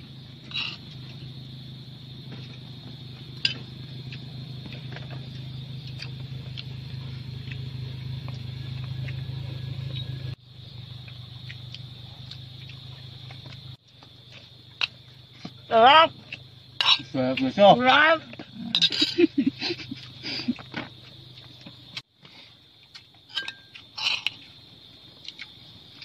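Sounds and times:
high-pitched insect drone: 0.0 - 22.0
steady low hum: 0.0 - 26.0.

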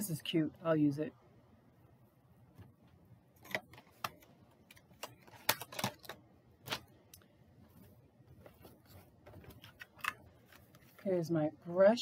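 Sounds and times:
plastic packaging clicks and crinkles: 3.4 - 7.2.

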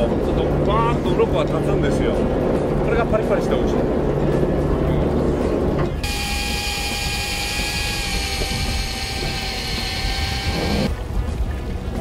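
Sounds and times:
fishing reel motor whining: 6.0 - 10.9.

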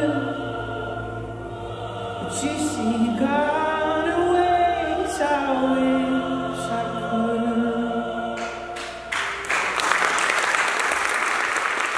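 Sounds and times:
choir-like vocal chord: 0.0 - 9.8
audience applause: 8.8 - 11.9.

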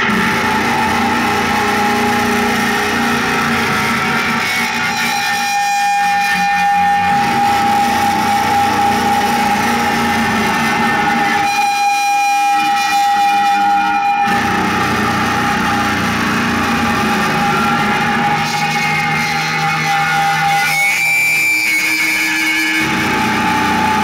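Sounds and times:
drum kits playing: 0.0 - 6.0, 6.6 - 11.7, 14.3 - 20.5
high held note: 0.0 - 24.0.

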